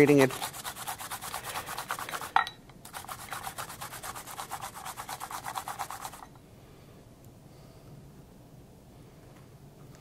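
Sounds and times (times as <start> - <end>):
radish grating on grater: 0.0 - 6.2.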